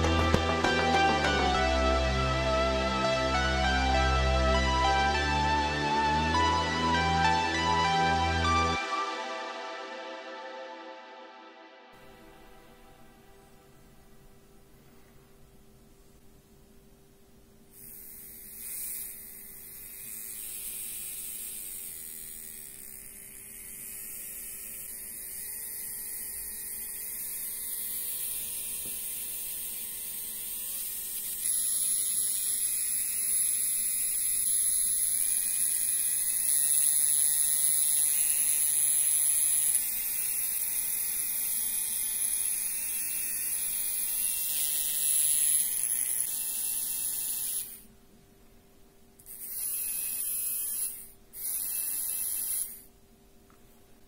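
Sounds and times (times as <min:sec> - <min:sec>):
small electric motor whining: 0:17.8 - 0:47.9, 0:49.2 - 0:52.9.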